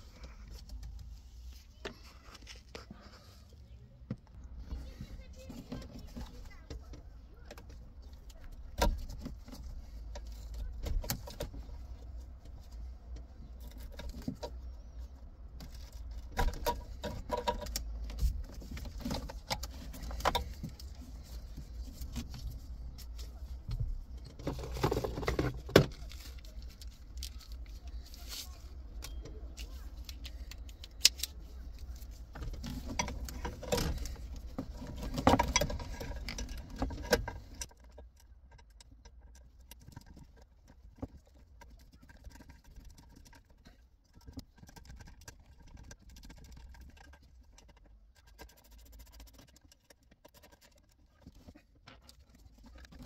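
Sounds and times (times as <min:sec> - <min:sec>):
plastic connectors clicking and rattling: 0:24.2 - 0:53.0.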